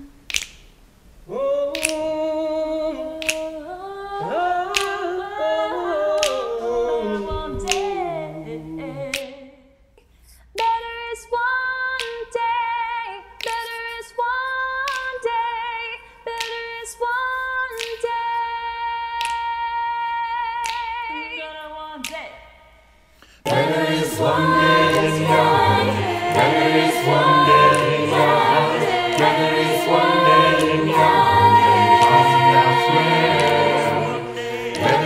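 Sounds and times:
percussive clicks: 0.2s - 0.8s, 1.7s - 2.1s, 3.2s - 3.6s, 23.5s - 35.0s
choir singing a cappella: 1.3s - 9.7s, 23.4s - 35.0s.

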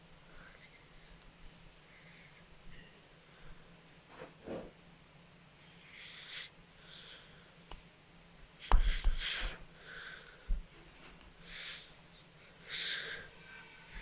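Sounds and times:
short breathy hisses: 8.6s - 10.2s.

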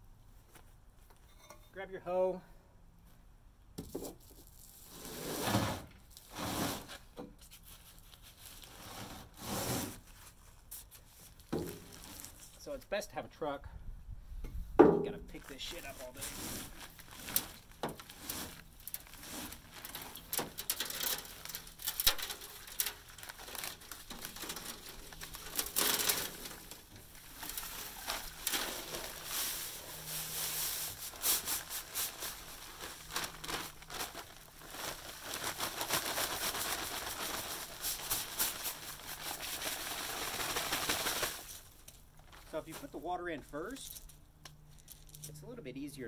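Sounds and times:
paper bag crinkling: 10.0s - 12.6s, 15.4s - 43.0s
dry mix pouring: 15.4s - 41.7s.

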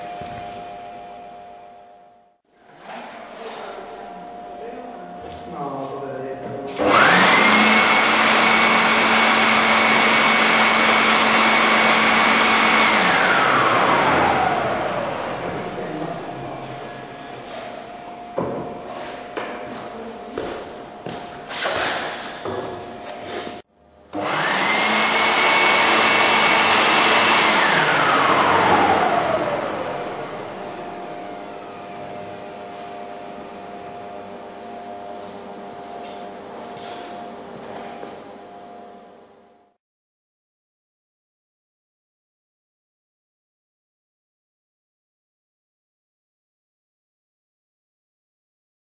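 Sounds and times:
leaf blower motor whine: 6.7s - 17.6s, 24.1s - 36.2s.

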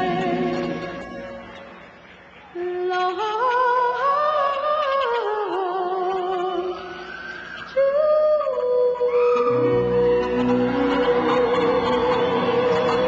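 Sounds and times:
slow melody line: 0.0s - 2.0s, 9.4s - 13.0s.

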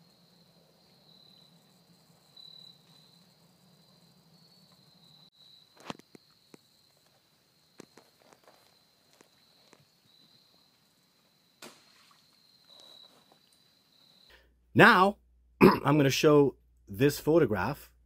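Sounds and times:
high-pitched insect trill: 0.0s - 14.3s.

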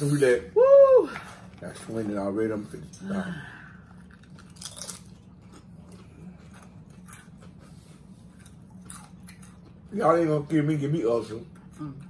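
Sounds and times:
faint low hum: 0.2s - 12.0s
chewing crisp chips: 3.8s - 12.0s.

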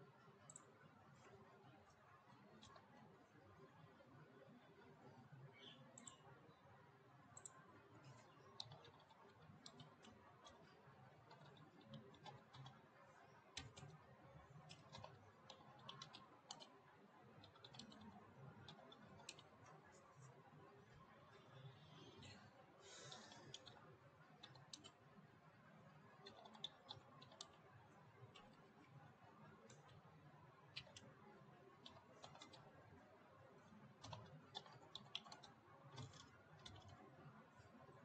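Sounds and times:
keyboard typing: 0.4s - 1.4s, 2.3s - 3.0s, 5.6s - 6.2s, 7.4s - 20.3s, 22.9s - 25.1s, 25.9s - 38.0s.

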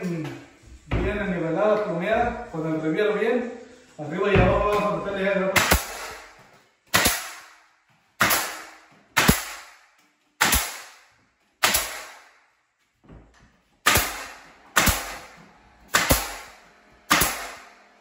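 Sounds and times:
nail gun shots echoing: 5.5s - 7.6s, 8.2s - 12.4s, 13.8s - 17.8s.

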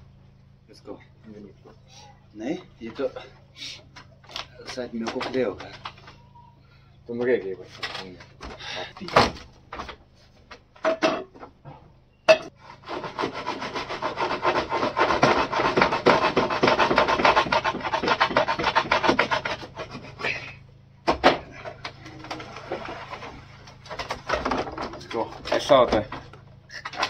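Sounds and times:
blade sawing through hard hide: 12.6s - 20.6s.

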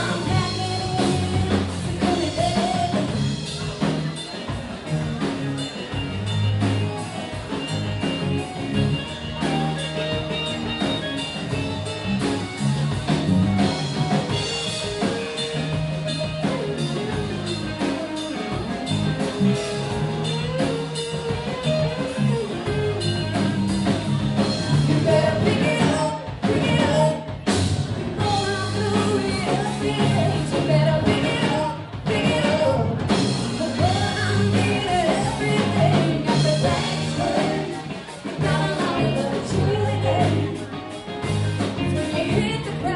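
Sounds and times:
woman singing lead: 0.0s - 3.6s, 24.7s - 27.5s, 28.2s - 42.9s
live rock band playing: 0.0s - 42.9s.

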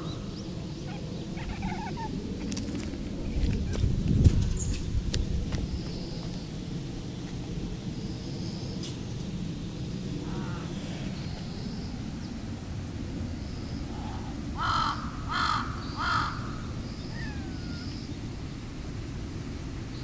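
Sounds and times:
crow cawing: 0.9s - 2.1s, 10.2s - 10.9s, 13.9s - 18.0s.

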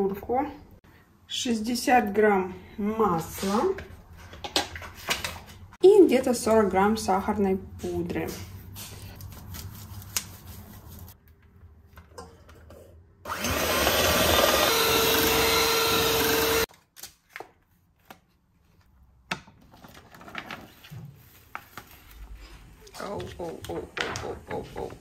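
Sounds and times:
electric mixer whining: 13.3s - 16.7s.

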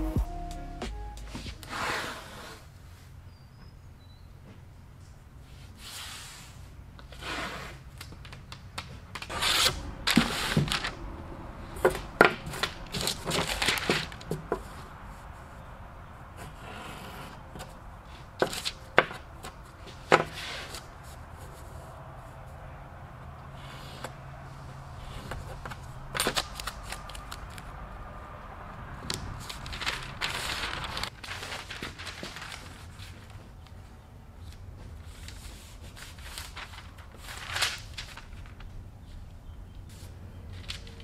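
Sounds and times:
paper rubbing and rustling: 11.9s - 14.8s, 29.1s - 33.8s, 34.4s - 38.8s.

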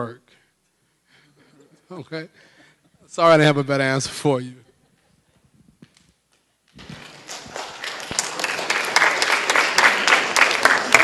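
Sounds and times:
audience applauding: 6.9s - 11.0s.

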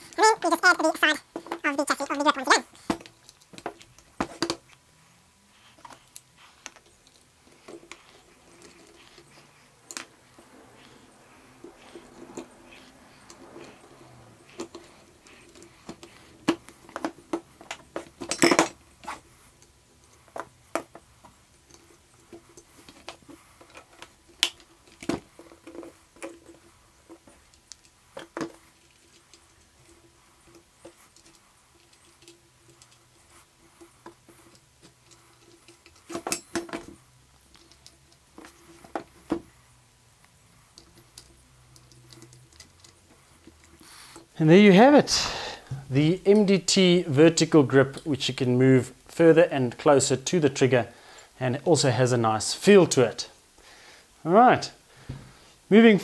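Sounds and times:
faint steady hum: 0.0s - 56.0s
metal and plastic parts clinking: 14.4s - 19.2s, 34.0s - 39.4s.

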